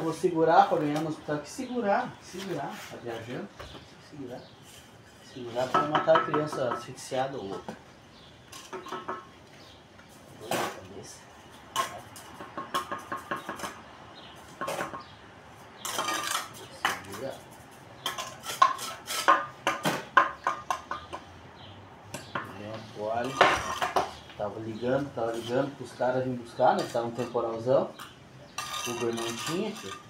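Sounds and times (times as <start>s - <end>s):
trowel tapping and scraping on bricks: 5.5s - 7.8s, 8.5s - 9.3s, 11.7s - 13.8s, 15.8s - 21.3s, 28.0s - 30.0s.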